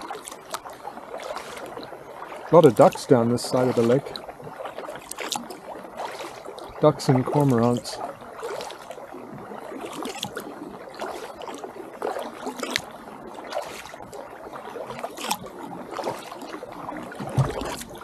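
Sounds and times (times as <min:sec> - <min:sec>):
water dripping: 0:00.0 - 0:09.0, 0:15.0 - 0:18.0
paddle splashing: 0:00.0 - 0:18.0.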